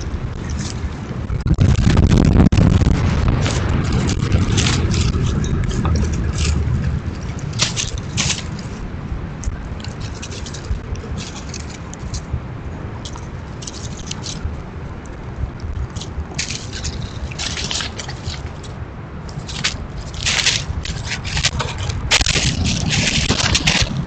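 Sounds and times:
low rumble: 0.0s - 24.0s
squirrels scratching in dry leaves: 0.0s - 24.0s.

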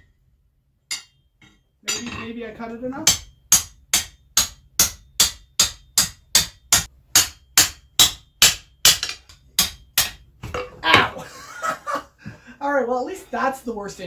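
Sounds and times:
hammer striking steel on anvil: 0.9s - 2.3s, 3.0s - 10.3s.

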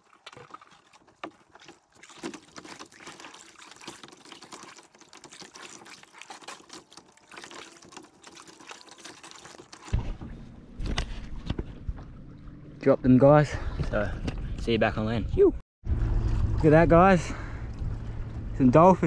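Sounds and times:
paddle splashing in water: 0.0s - 12.8s
water trickling off blades: 0.0s - 14.8s.

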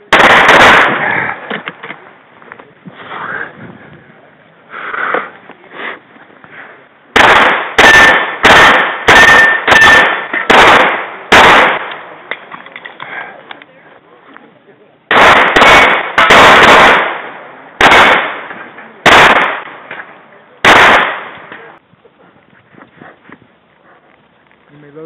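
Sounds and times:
handgun shots: 7.2s - 12.0s.

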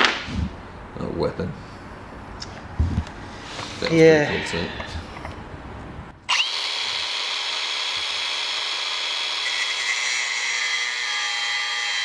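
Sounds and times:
handheld grinder whining: 6.3s - 12.0s.

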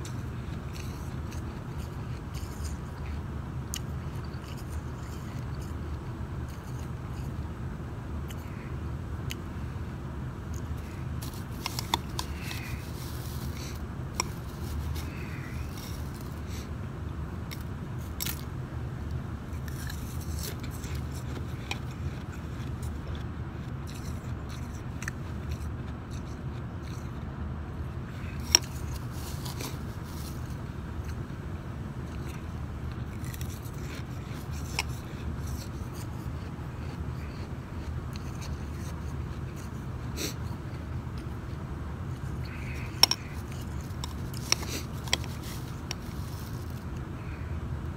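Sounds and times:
ice crunching as chewed: 0.0s - 7.5s, 8.2s - 9.7s, 10.4s - 16.8s, 17.4s - 47.6s
spoon scraping through ice: 11.2s - 16.4s.

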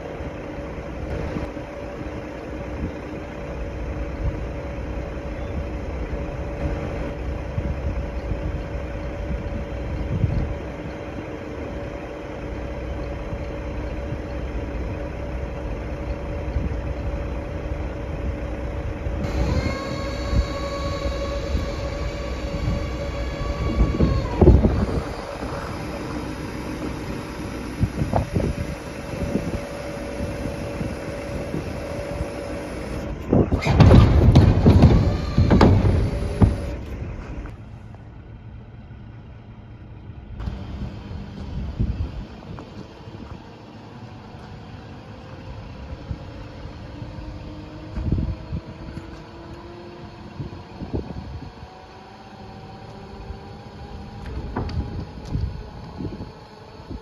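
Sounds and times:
hydraulic whine: 0.0s - 57.0s
truck engine running: 0.0s - 57.0s
low rumble: 12.6s - 43.5s
wind gust on microphone: 19.2s - 32.4s, 45.9s - 49.1s
creaks and knocks: 33.6s - 36.8s, 54.2s - 55.5s.

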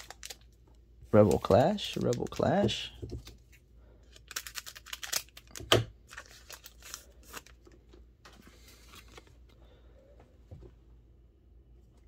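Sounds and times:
foil wrapper crinkling: 0.0s - 0.5s, 1.2s - 2.9s, 4.1s - 7.7s
cards rustling: 0.0s - 9.6s.

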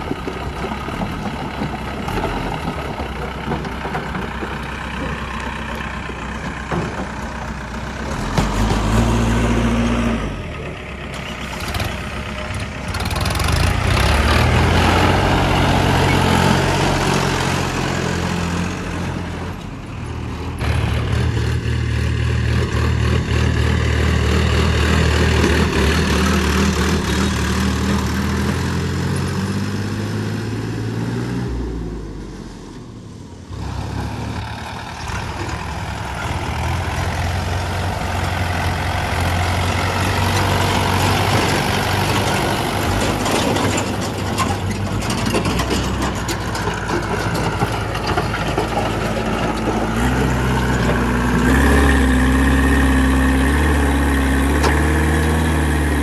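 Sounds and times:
diesel tractor engine running: 0.0s - 56.0s.

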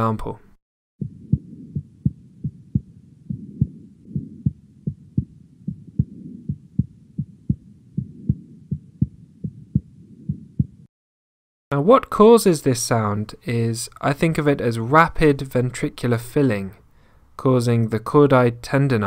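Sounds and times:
heartbeat through stethoscope: 1.0s - 10.9s.

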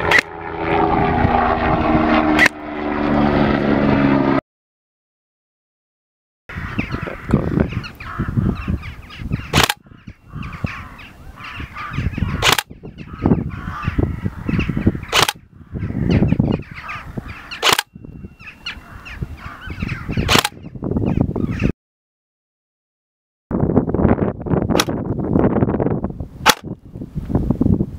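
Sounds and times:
wind rumbling on microphone: 0.0s - 4.4s, 6.5s - 21.7s, 23.5s - 27.9s
airsoft rifle shots snapping: 0.1s - 0.3s, 2.4s - 2.6s, 9.6s - 9.8s, 12.4s - 12.7s, 15.1s - 15.4s, 17.6s - 17.9s, 20.3s - 20.6s, 24.8s - 25.0s, 26.4s - 26.7s.

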